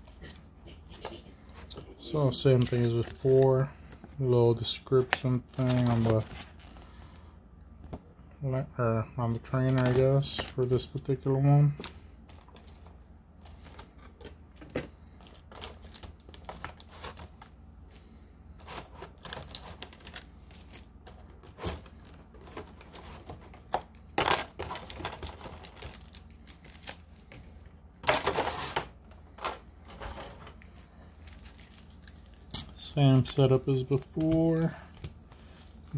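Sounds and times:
card packaging rustling: 0.0s - 7.0s, 9.3s - 35.9s
cards clicking and tapping: 32.5s - 35.2s.

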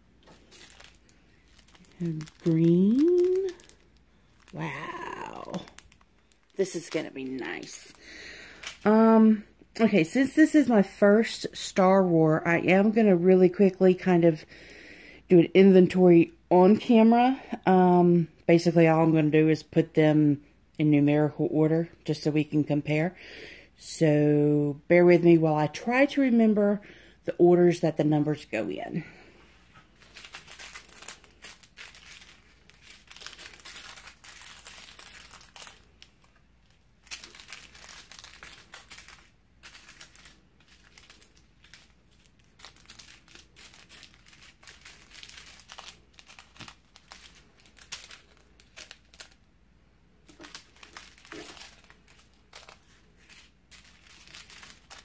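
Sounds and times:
plastic bags crinkling: 0.1s - 10.6s, 29.8s - 49.5s, 50.2s - 55.0s.

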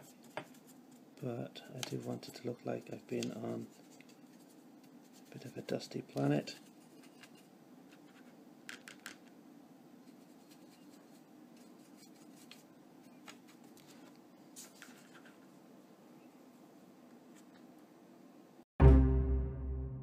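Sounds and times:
brush scratching on plastic: 0.0s - 1.2s, 1.8s - 8.4s, 10.0s - 15.3s.

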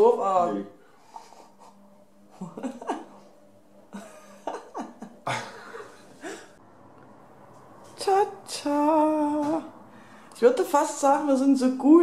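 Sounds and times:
stifled laughter: 2.3s - 3.3s, 3.9s - 6.6s.

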